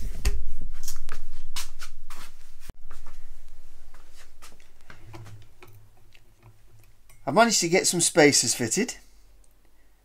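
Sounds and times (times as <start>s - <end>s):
steady low hum: 0.0s - 7.5s.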